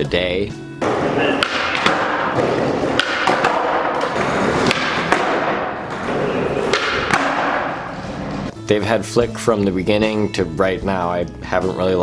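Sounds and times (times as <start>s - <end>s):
skateboard wheels rolling on concrete: 0.9s - 8.5s.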